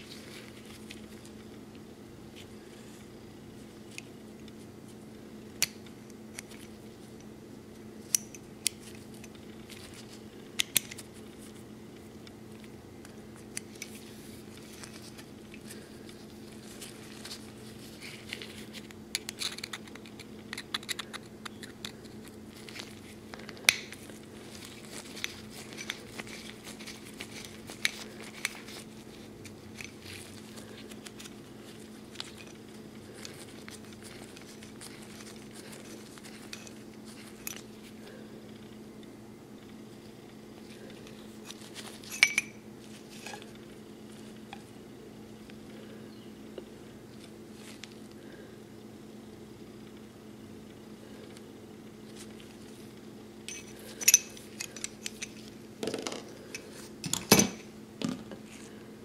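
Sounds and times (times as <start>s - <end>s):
steady low hum: 0.0s - 59.0s
metal parts clicking and scraping: 18.0s - 23.0s, 23.6s - 37.8s, 41.1s - 43.5s, 53.5s - 57.6s.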